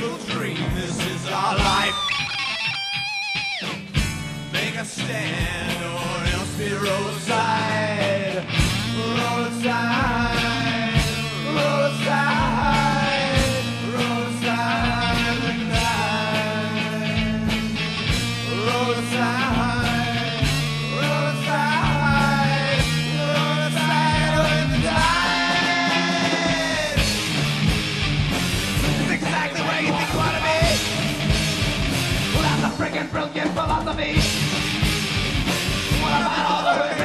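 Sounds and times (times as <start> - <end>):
bass: 0.0 - 37.0
drums: 0.0 - 37.0
lead guitar melody with pitch bends: 1.6 - 4.5.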